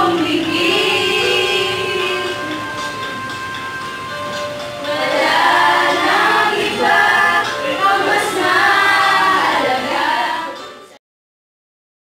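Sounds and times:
group of young voices singing: 0.0 - 3.2, 4.8 - 11.0.

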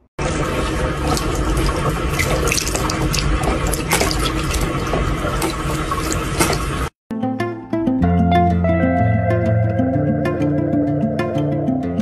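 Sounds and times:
tap water running into sink: 0.2 - 6.9
cat drinking splashes: 0.6 - 6.8.

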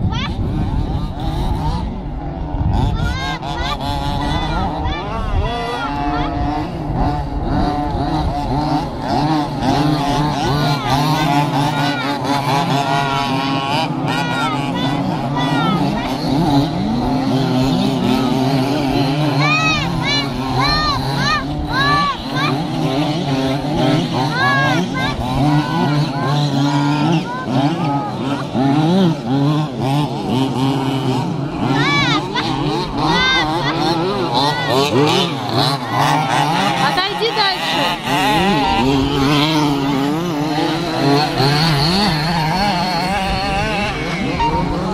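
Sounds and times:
small two-stroke engines revving: 0.0 - 44.9.

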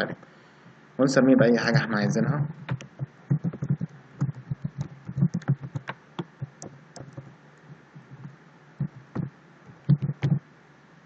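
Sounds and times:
computer keyboard typing: 2.6 - 10.4.

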